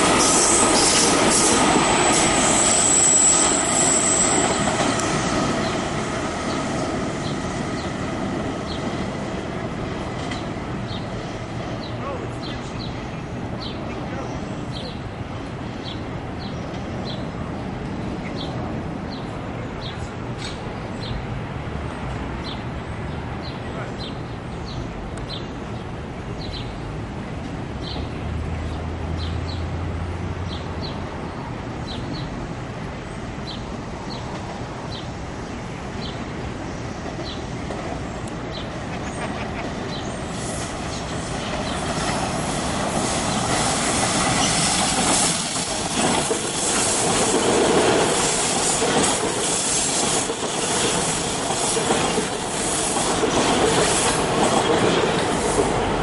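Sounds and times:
subway train rumbling on track: 0.0s - 56.0s
wheels clattering on rails: 37.0s - 56.0s.

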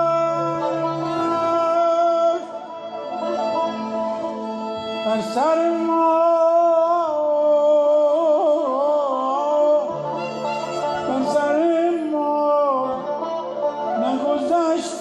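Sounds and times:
man singing with held notes: 0.0s - 3.4s, 4.8s - 15.0s
string instrument accompaniment: 0.0s - 15.0s.

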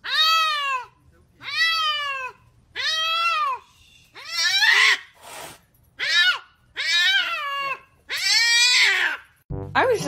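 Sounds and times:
cat meowing loudly: 0.0s - 3.6s, 4.2s - 5.0s, 6.0s - 9.3s.

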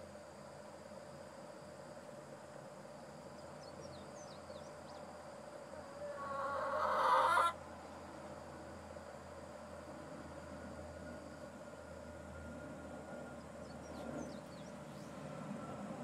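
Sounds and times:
hen calling: 5.8s - 7.6s.

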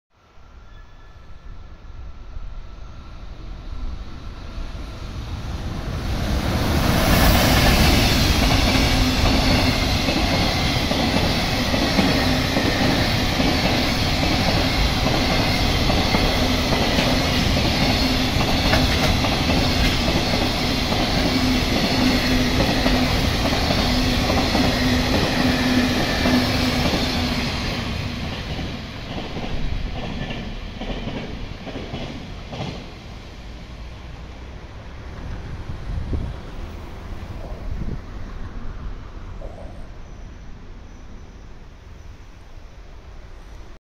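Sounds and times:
train wheels rumbling on rails: 4.0s - 39.9s.

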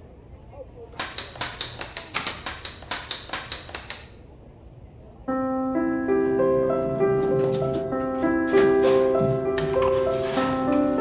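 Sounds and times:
rapid even clicking: 1.0s - 4.2s
piano music: 5.3s - 11.0s.

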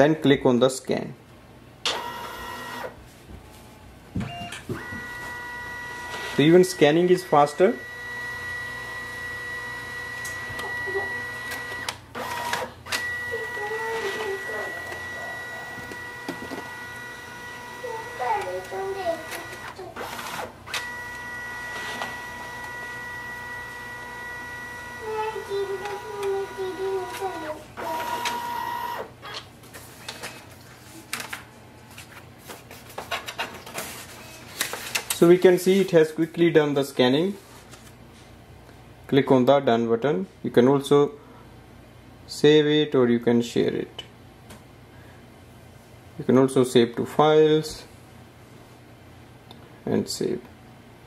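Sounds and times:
scanner motors whining: 1.8s - 3.0s, 4.3s - 30.5s
scanner clicks: 18.3s - 21.2s.

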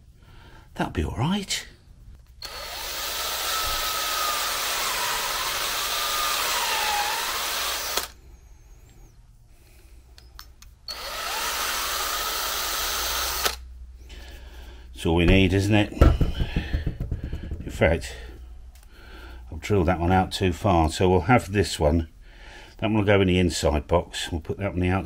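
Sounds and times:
cordless drill spinning: 2.4s - 8.2s, 10.9s - 13.6s.

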